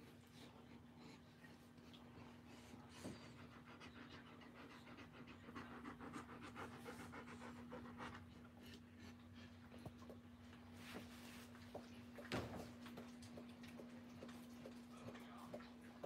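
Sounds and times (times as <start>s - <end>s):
dog panting: 0.0s - 12.2s.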